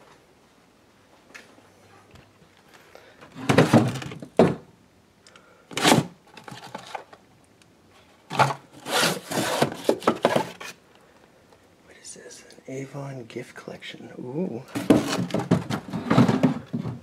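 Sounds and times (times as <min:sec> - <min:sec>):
rustling through boxes and bags: 0:01.2 - 0:04.4, 0:05.7 - 0:07.2, 0:07.9 - 0:10.8, 0:14.7 - 0:17.0.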